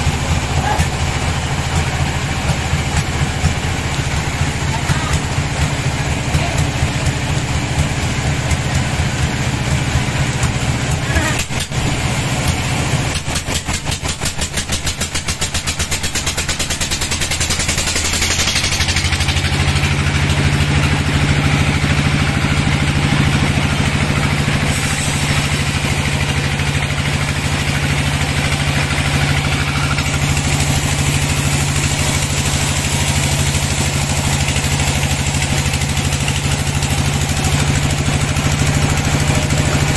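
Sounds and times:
band saw cutting log: 0:10.4 - 0:21.9, 0:24.4 - 0:39.9.

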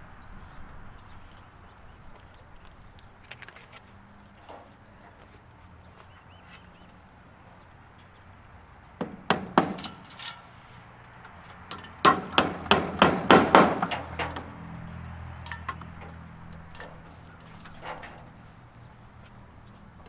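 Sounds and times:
hammer driving nails into wood: 0:09.0 - 0:10.2, 0:11.8 - 0:14.1.

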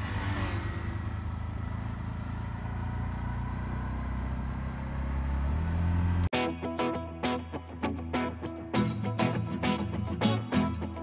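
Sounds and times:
road noise: 0:00.0 - 0:06.3
tuk-tuk engine running: 0:00.0 - 0:06.3
guitar music: 0:06.3 - 0:11.0.

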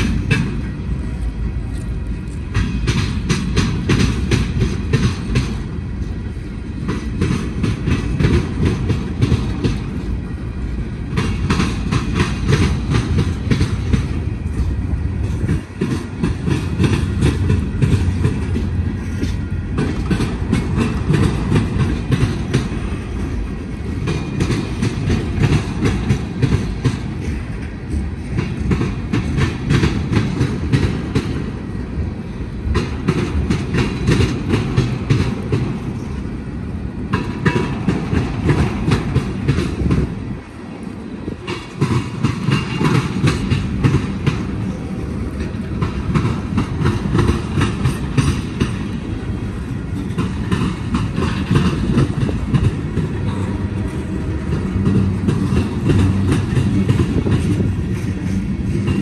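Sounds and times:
freight train rumbling past: 0:00.0 - 0:59.0
wheels clicking over rail joints: 0:00.0 - 0:59.0.

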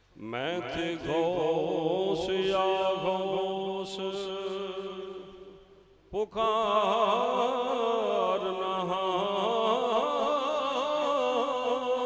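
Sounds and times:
man chanting: 0:00.2 - 0:05.6, 0:06.2 - 0:12.0.

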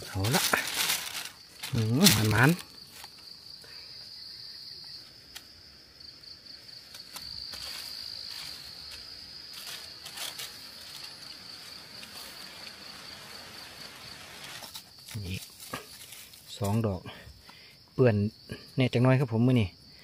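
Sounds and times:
rustles and clicks: 0:00.0 - 0:03.2, 0:06.8 - 0:12.8, 0:14.1 - 0:16.8
insects buzzing: 0:00.0 - 0:20.0.

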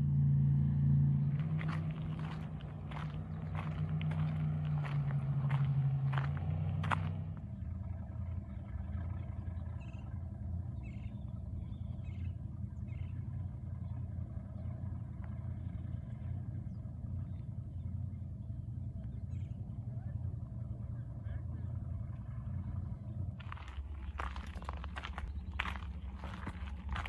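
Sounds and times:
motorboat engine droning: 0:00.0 - 0:27.0
bird chirps: 0:09.6 - 0:13.3.

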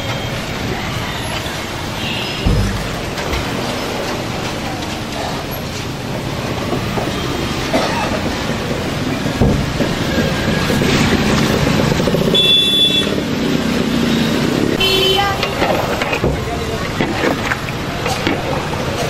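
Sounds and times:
low thump: 0:02.4 - 0:03.8
steady rumbling: 0:02.4 - 0:04.4.

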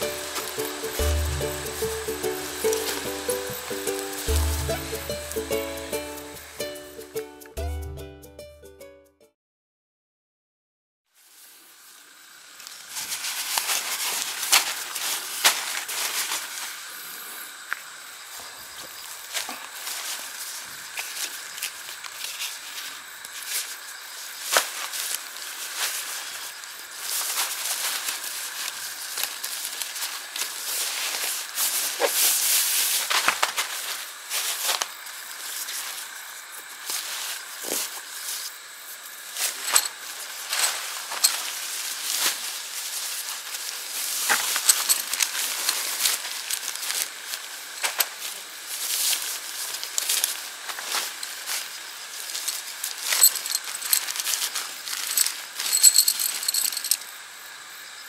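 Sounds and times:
tent fabric rustling and crinkling: 0:00.0 - 0:05.4, 0:11.1 - 0:17.0, 0:19.0 - 0:38.5, 0:39.2 - 0:57.0
light metallic clinks: 0:39.6 - 0:41.4, 0:52.4 - 0:57.2.

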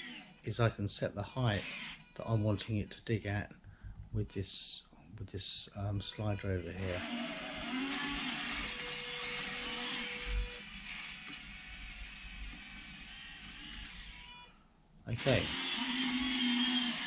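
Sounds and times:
servo motors whining: 0:01.5 - 0:02.4, 0:06.7 - 0:14.6, 0:15.2 - 0:17.0.

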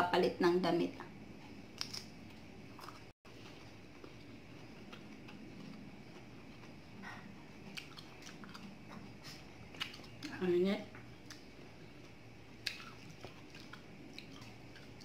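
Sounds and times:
person chewing soft fruit: 0:01.4 - 0:15.0
mouth clicks and smacks: 0:12.6 - 0:14.9.

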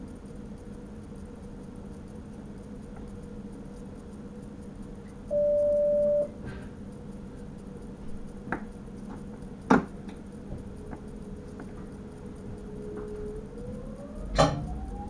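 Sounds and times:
electrical hum: 0:00.0 - 0:15.0
electronic beep: 0:05.3 - 0:06.3.

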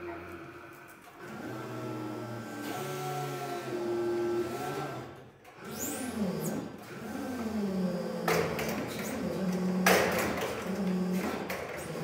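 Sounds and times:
forklift electric motor whining: 0:00.0 - 0:07.4.

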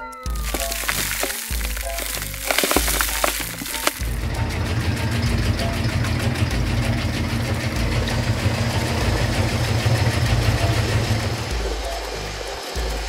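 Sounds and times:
faint fast ticking: 0:01.5 - 0:13.0
heavy truck engine idling: 0:03.8 - 0:13.0.

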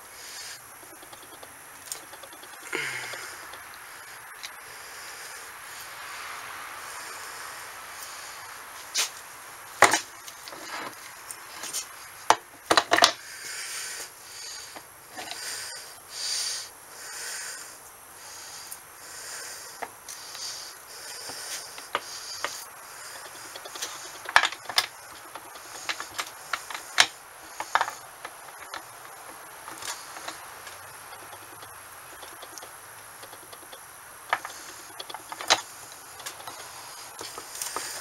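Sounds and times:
greasy parts scraping: 0:00.0 - 0:04.5, 0:09.8 - 0:11.9, 0:19.8 - 0:38.0
metal clicks and knocks: 0:00.8 - 0:02.6, 0:12.3 - 0:13.2, 0:23.1 - 0:37.8.

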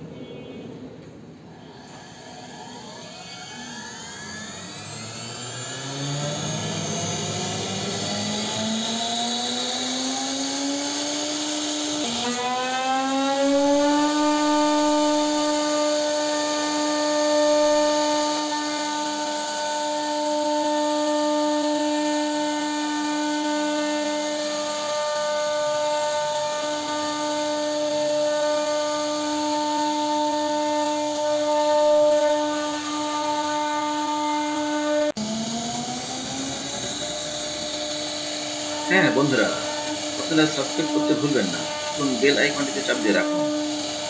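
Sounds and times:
router spindle whining: 0:01.5 - 0:44.0.

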